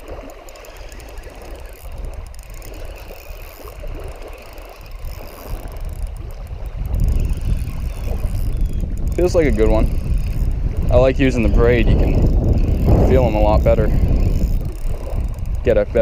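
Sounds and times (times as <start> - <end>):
waves lapping on gravel shore: 0.0 - 8.4
fishing reel whirring: 0.0 - 16.0
wind rumbling on microphone: 0.0 - 16.0.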